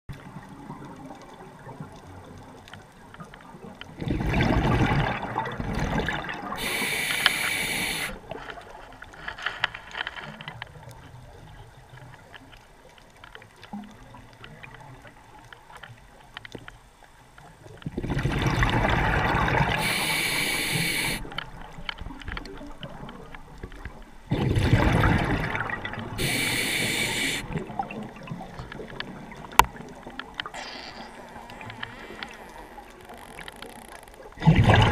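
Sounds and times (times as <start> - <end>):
underwater background: 0.1 - 34.9
exhaled bubbles rumbling: 3.6 - 6.9, 17.8 - 20.1, 20.8 - 34.9
regulator inhale hiss: 6.6 - 8.2, 19.7 - 21.3, 26.2 - 27.6.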